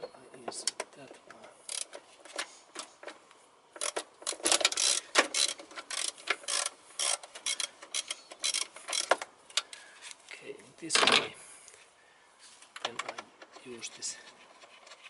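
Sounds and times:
ratchet wrench clicking: 1.7s - 1.9s, 3.8s - 9.2s.

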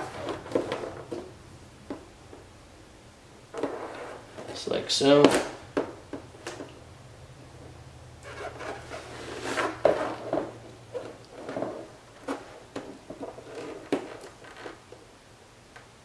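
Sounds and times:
tape rustling and scraping: 0.0s - 2.0s, 3.5s - 6.8s, 8.2s - 15.0s.

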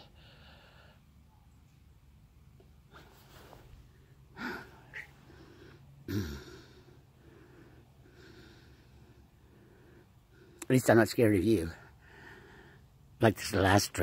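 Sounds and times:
person breathing: 0.0s - 1.2s, 2.9s - 10.6s, 11.8s - 13.0s.

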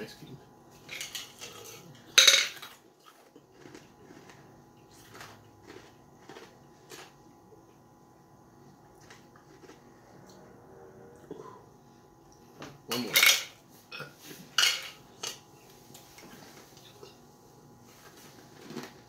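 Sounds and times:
ice crunched between teeth: 3.1s - 7.2s.

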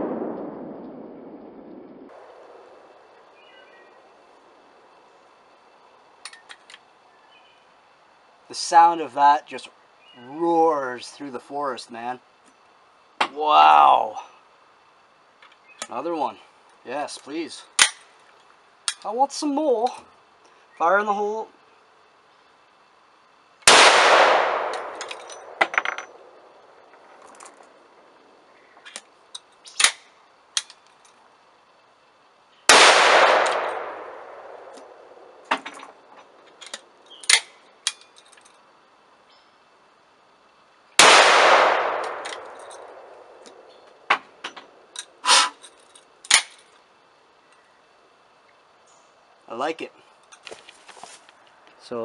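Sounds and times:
gunshots echoing: 0.0s - 3.6s, 23.7s - 26.6s, 32.7s - 35.6s, 41.0s - 43.7s
shotgun action clicks and clanks: 23.7s - 27.7s, 32.8s - 38.6s, 41.0s - 45.2s.

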